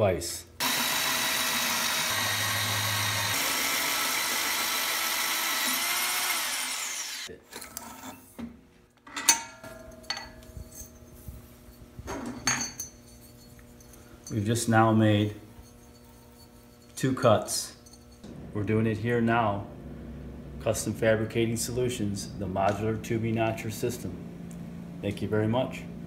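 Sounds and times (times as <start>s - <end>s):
hole saw cutting metal tube: 0.6s - 7.3s.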